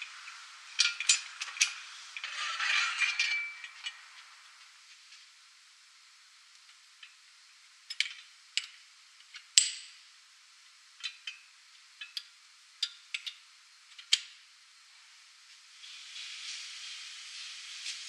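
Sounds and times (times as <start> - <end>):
ringing metal clank: 3.0 - 3.8.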